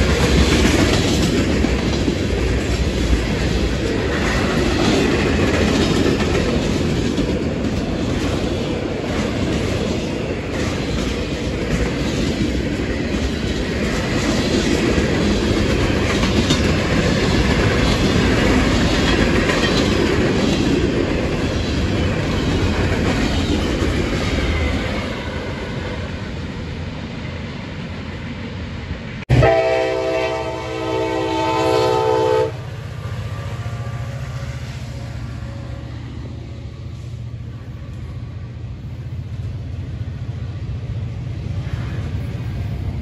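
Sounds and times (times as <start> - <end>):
train wheel clatter: 0.0 - 26.4
locomotive multi-chime horn: 29.3 - 32.7.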